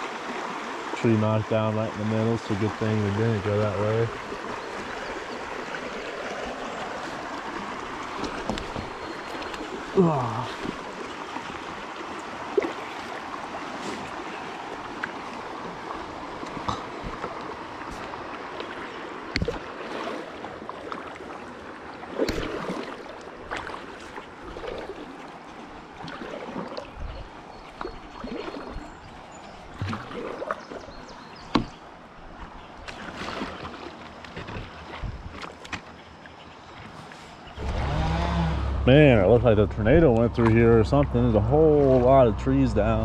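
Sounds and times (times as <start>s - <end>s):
water trickling and gurgling: 0.0s - 37.8s, 38.7s - 43.0s
paddle strokes splashing water: 0.0s - 43.0s.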